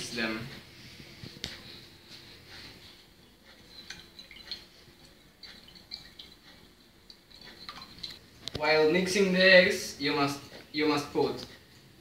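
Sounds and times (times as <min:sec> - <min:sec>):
wet sloshing of egg: 0:03.6 - 0:08.5
whisk clicking against bowl: 0:03.6 - 0:08.7.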